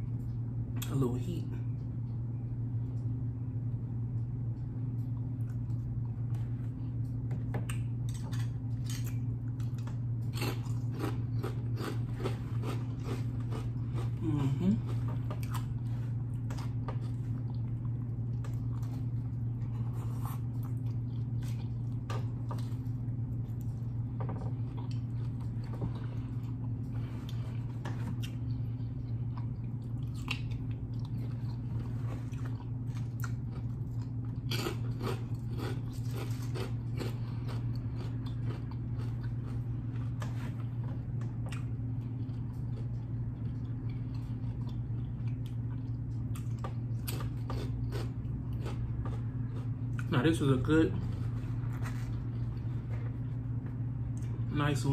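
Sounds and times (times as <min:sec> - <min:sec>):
steady low hum: 0:00.0 - 0:54.9
chewing with wet mouth sounds: 0:08.6 - 0:50.3
crunching chips: 0:32.7 - 0:39.7.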